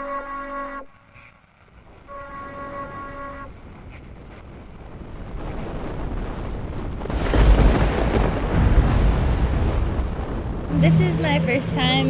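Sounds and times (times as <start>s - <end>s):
ocean wave breaking: 5.0s - 12.0s.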